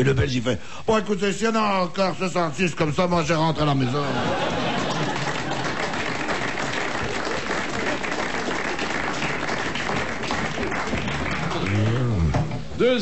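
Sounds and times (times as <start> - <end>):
audience applauding: 4.1 - 12.4.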